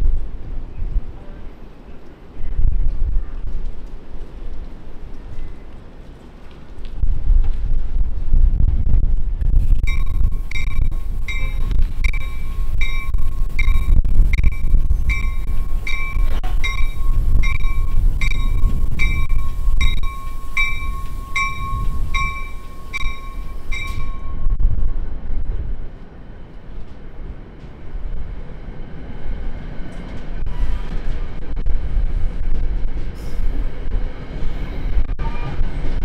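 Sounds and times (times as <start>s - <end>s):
low rumble of moving train: 0.0s - 36.0s
train bell ringing: 9.9s - 24.6s.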